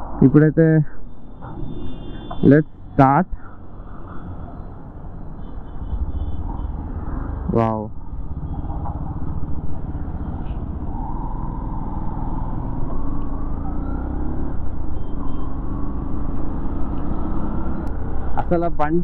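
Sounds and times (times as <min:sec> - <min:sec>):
wind and road noise: 0:00.0 - 0:19.0.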